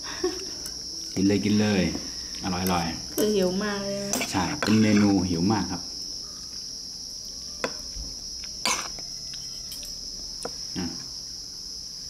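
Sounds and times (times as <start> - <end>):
insects chirring: 0.0 - 12.0
cutlery clicking on dishes: 8.6 - 9.0.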